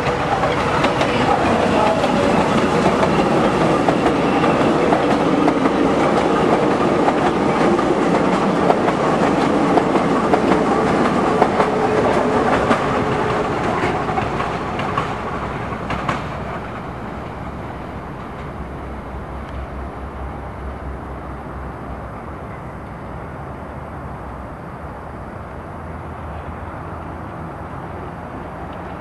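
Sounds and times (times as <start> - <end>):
wheels clicking over rail joints: 0.0 - 18.8
metro train running past: 0.0 - 29.0.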